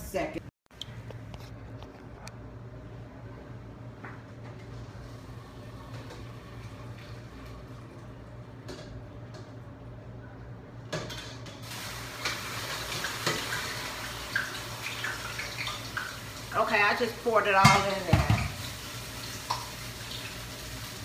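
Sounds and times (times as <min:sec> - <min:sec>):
metal pots knocking: 0:17.6 - 0:18.6.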